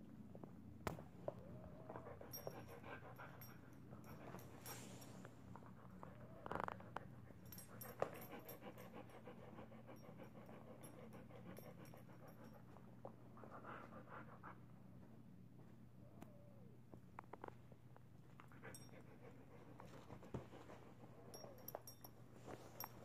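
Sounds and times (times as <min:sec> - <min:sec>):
steady low hum: 0:00.0 - 0:23.0
dog panting: 0:07.3 - 0:14.8.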